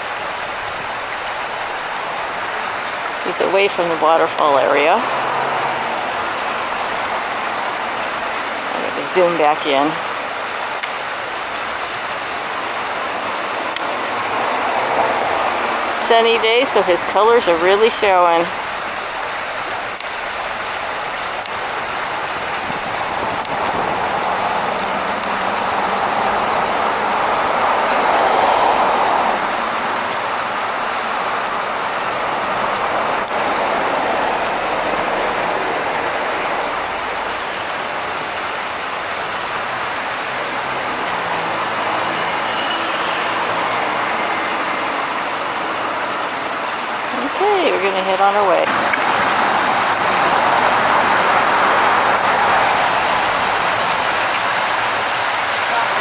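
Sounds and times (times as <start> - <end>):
stream water rushing over rocks: 0.0 - 56.0.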